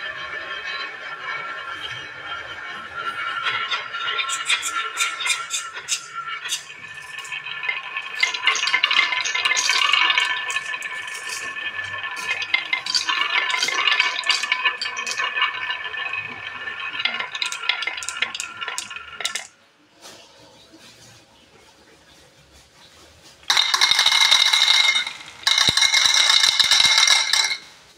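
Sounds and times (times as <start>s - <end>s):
marbles rolling on wooden track: 0.0s - 19.6s, 23.5s - 27.9s
marbles clicking together: 8.0s - 11.6s, 12.2s - 15.4s, 17.0s - 19.5s, 23.5s - 27.7s.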